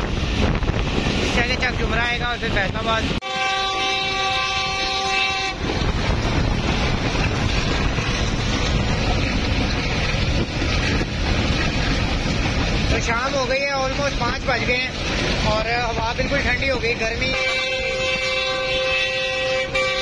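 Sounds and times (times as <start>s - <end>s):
train rolling along track: 0.0s - 20.0s
train horn blast: 3.2s - 5.9s, 17.3s - 20.0s.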